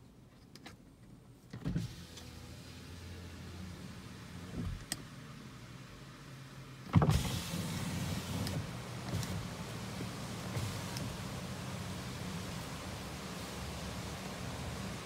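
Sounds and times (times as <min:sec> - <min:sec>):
window thump: 0:06.9 - 0:07.7
power window motor hum: 0:06.9 - 0:15.0
wind hiss: 0:07.0 - 0:15.0.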